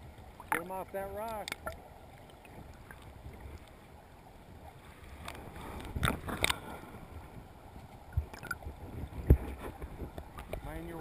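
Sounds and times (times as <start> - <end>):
muffled underwater river rushing: 0.0 - 11.0.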